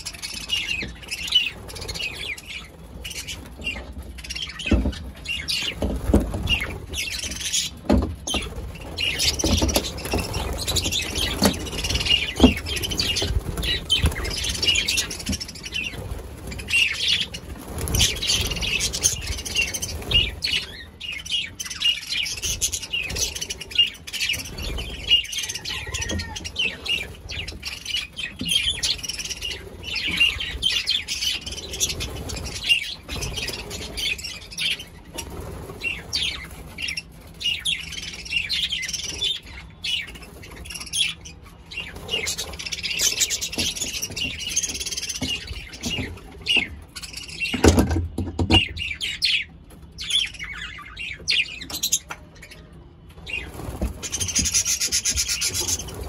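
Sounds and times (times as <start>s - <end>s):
budgerigars chirping and warbling: 0.0s - 56.0s.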